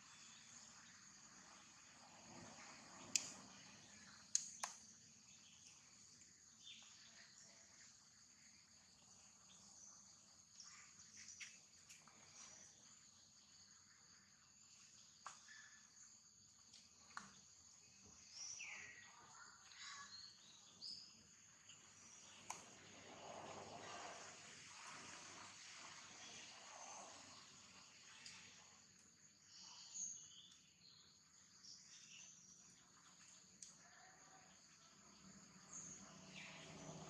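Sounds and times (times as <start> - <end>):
high-pitched insect chorus: 0.0 - 37.0
sharp clicks: 3.1 - 3.4, 4.3 - 4.8.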